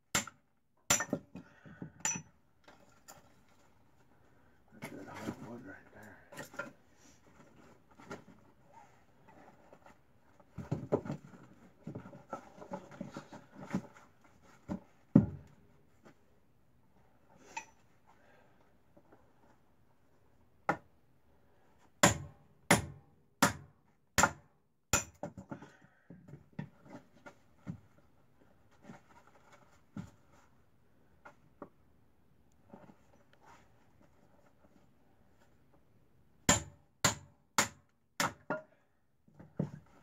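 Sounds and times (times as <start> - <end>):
tool striking wood: 22.0 - 25.3, 36.5 - 38.6.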